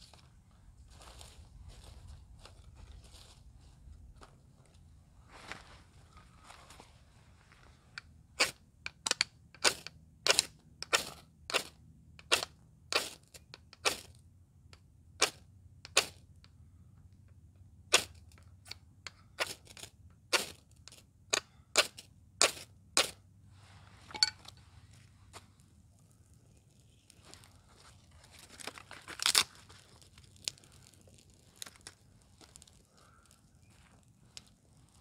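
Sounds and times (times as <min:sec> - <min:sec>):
dry wood cracking: 0:25.6 - 0:35.0.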